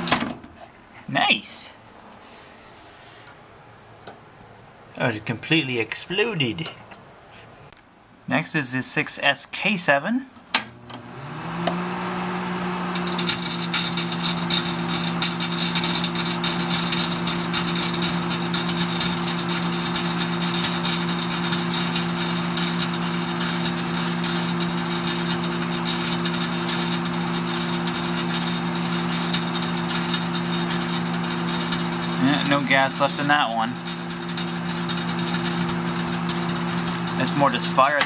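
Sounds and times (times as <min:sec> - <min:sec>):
microwave oven hum: 0:10.5 - 0:38.0
vacuum tube crackling and arcing: 0:12.6 - 0:38.0.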